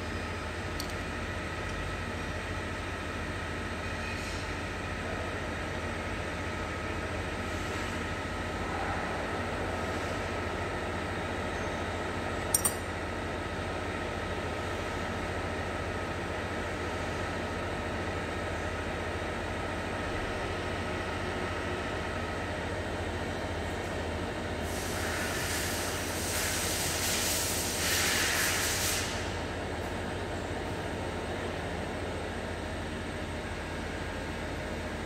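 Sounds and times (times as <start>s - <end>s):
background hum and hiss: 0.0s - 35.0s
metallic click of valve parts: 0.8s - 1.0s, 12.5s - 12.8s.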